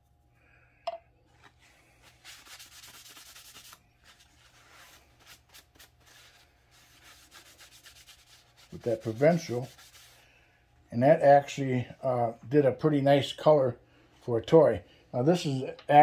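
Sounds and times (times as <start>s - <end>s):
paper towel wiping wood: 1.4s - 10.2s.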